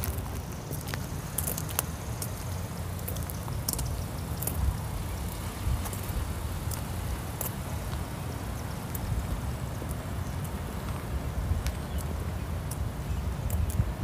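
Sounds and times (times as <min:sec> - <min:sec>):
wind buffeting microphone: 0:03.4 - 0:14.0.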